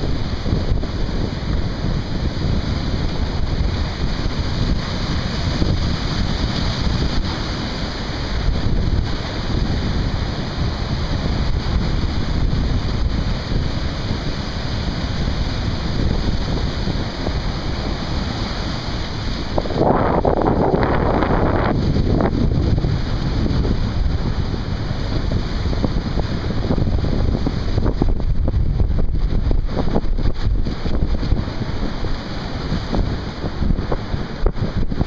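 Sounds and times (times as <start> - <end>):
breaking surf and waves: 0.0 - 35.0
wind buffeting microphone: 0.0 - 35.0.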